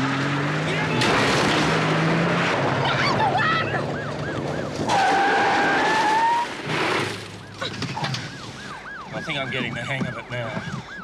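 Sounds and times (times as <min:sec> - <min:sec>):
siren wailing: 0:02.8 - 0:11.0
tyres squealing in a skid: 0:04.8 - 0:08.4.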